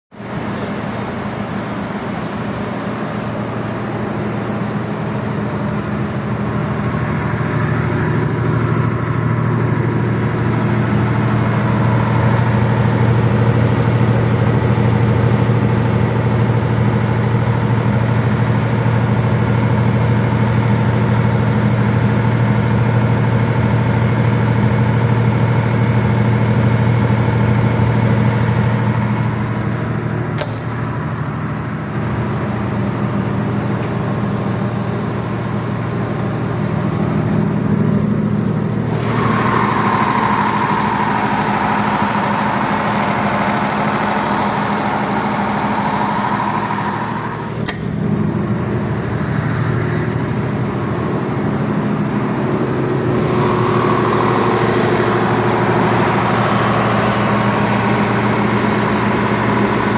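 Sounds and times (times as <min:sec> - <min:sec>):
diesel generator droning: 0:00.1 - 0:59.9
short click: 0:30.4 - 0:30.7, 0:47.6 - 0:47.9.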